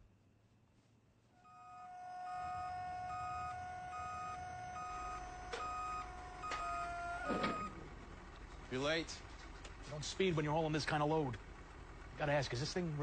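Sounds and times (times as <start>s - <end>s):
low engine rumble: 0.0s - 13.0s
truck reversing alarm beeping: 1.4s - 7.9s
steady tone: 1.4s - 8.0s.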